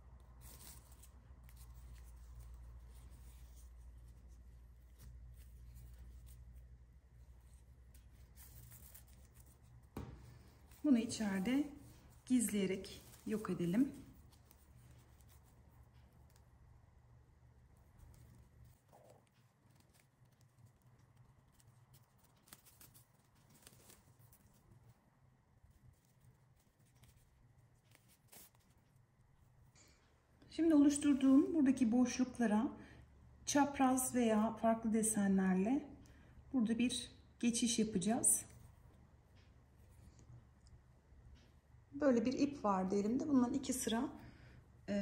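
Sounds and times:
paper yarn rustling and scratching: 0.0 - 29.7, 36.8 - 40.8.

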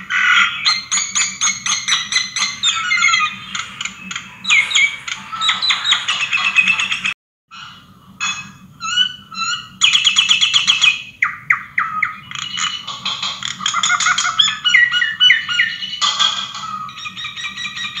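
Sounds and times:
birds chirping and squawking: 0.0 - 18.0
downward sliding bird calls: 0.1 - 7.2.

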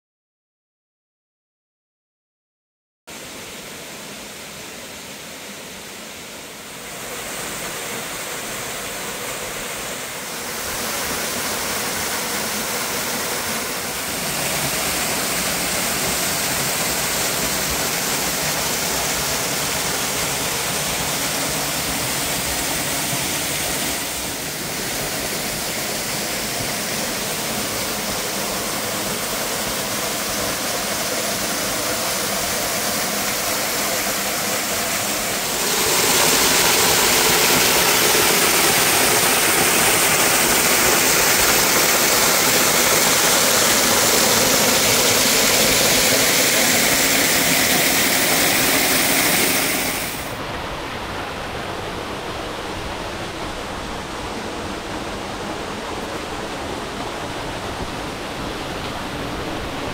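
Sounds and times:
waterfall splashing into pool: 6.9 - 50.6.

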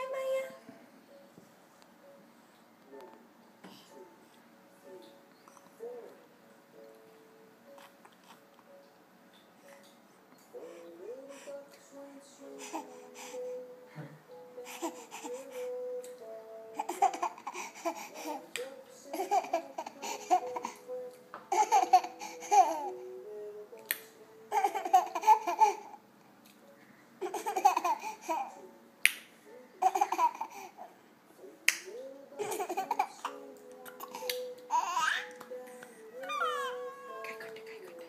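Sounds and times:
baby giggling: 16.8 - 18.5, 19.1 - 20.8, 21.5 - 22.9, 24.5 - 26.0, 27.2 - 28.6, 29.8 - 30.7, 32.4 - 35.4, 36.2 - 37.7.

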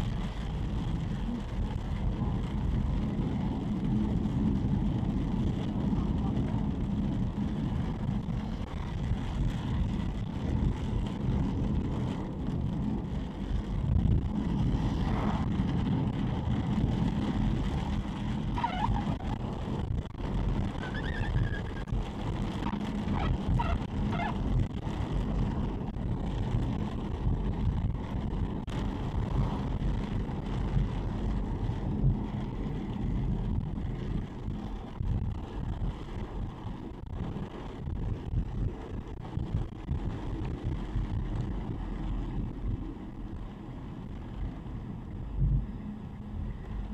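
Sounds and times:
car driving on wet road: 0.0 - 46.9
faint high squeaks: 20.8 - 21.9.

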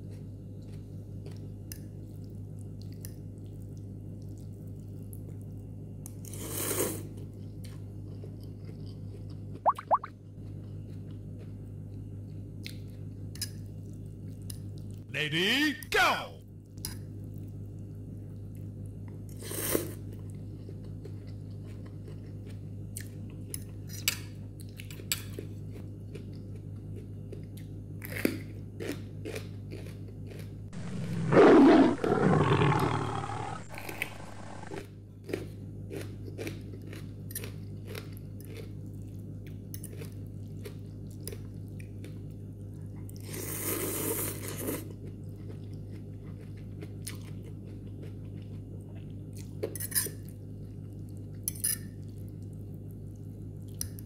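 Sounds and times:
chewing and crunching: 0.0 - 15.0, 16.7 - 54.0
low hum: 30.8 - 34.8.

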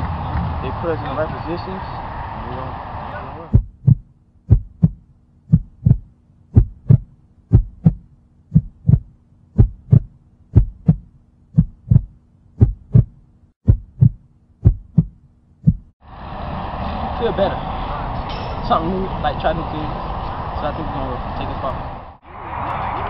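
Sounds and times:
heartbeat thumps: 3.5 - 15.9.

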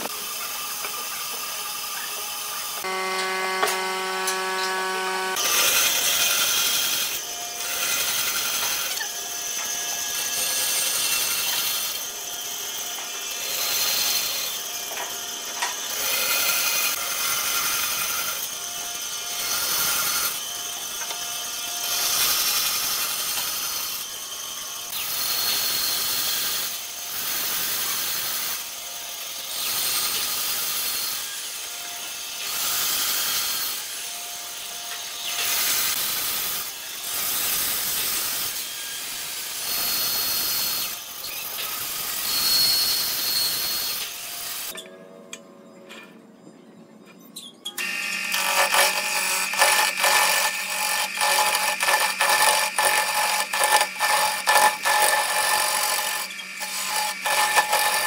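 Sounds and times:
wood lathe humming: 0.0 - 25.8, 47.8 - 58.0
band saw cutting wood: 0.0 - 44.8, 47.8 - 58.0
turning tool scraping wood: 47.8 - 58.0.

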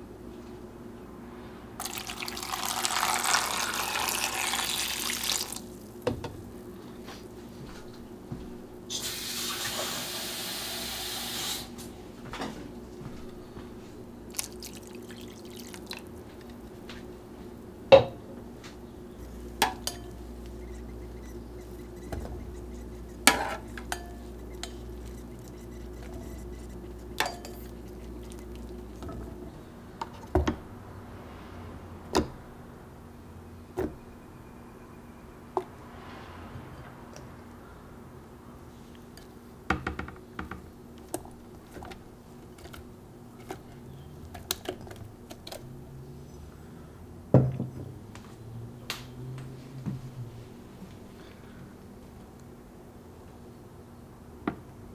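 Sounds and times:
water pouring into a pot: 1.8 - 5.8, 14.3 - 16.1
steady low hum: 11.8 - 35.8
pots and utensils clinking: 19.6 - 20.9, 21.8 - 29.2.

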